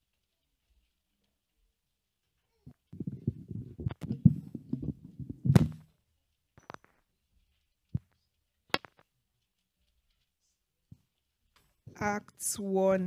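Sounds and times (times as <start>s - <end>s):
microphone handling noise: 2.7s - 5.9s.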